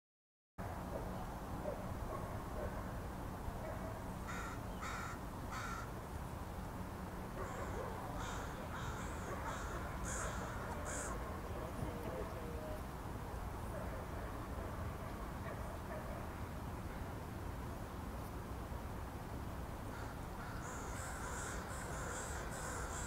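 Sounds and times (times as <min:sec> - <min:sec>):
crows cawing: 0:04.2 - 0:06.0, 0:07.4 - 0:11.2, 0:19.9 - 0:23.0.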